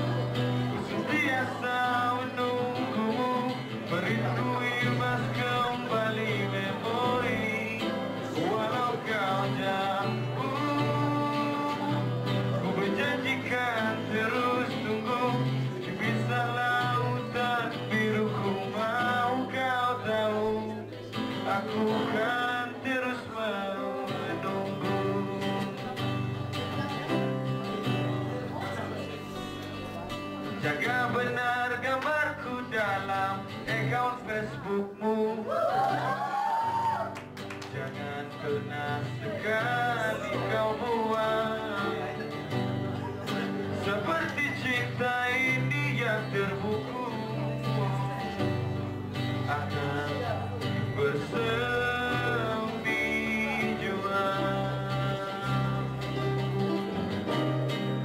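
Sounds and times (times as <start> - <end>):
man singing: 0.0 - 58.0
strummed acoustic guitar: 0.0 - 58.0.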